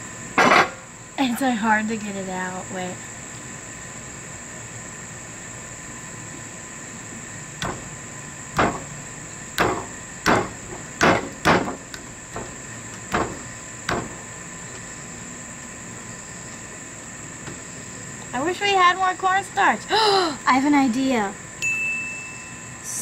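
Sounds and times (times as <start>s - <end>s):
crickets chirring: 0.0s - 23.0s
sharp knocks: 7.6s - 7.9s, 8.6s - 8.9s, 9.6s - 14.2s.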